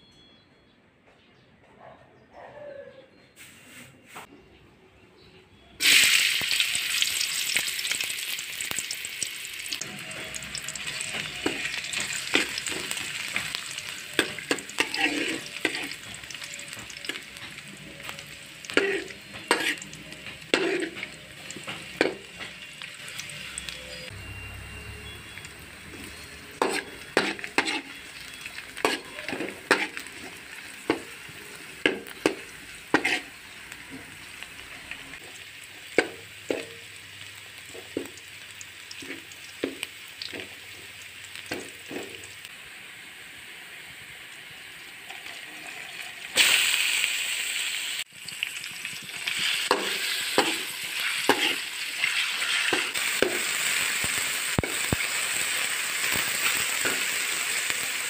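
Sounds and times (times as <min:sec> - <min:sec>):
food sizzling in oil: 0:05.8 - 0:58.0
metal spoon scraping a wok: 0:09.8 - 0:24.1, 0:26.1 - 0:33.4, 0:49.2 - 0:53.8.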